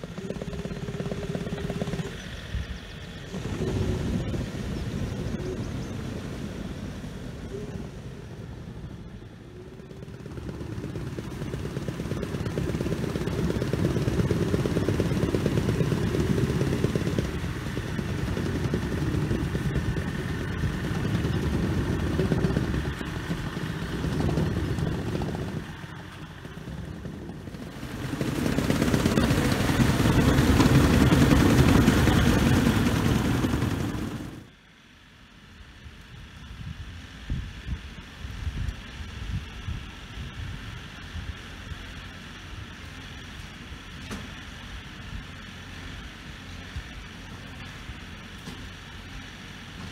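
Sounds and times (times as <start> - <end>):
engine running: 0.0 - 49.9.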